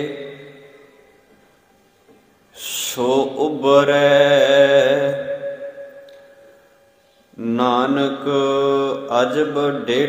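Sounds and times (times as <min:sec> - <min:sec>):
man chanting: 0:00.0 - 0:00.8, 0:02.6 - 0:05.9, 0:07.3 - 0:10.0.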